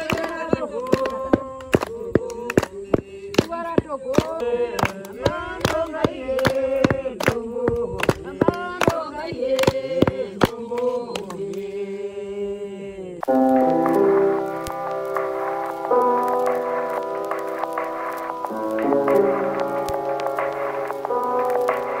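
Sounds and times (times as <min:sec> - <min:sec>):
hand-clapping: 0:00.0 - 0:11.7, 0:13.2 - 0:22.0
women singing unaccompanied: 0:00.0 - 0:14.3.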